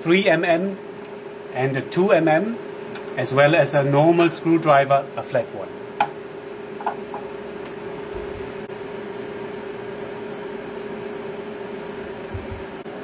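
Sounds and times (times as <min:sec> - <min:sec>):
machine hum with hiss: 0:00.0 - 0:13.0.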